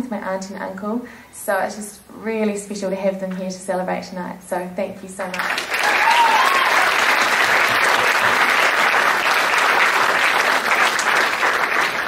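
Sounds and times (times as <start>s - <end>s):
crowd applauding: 5.3s - 12.0s.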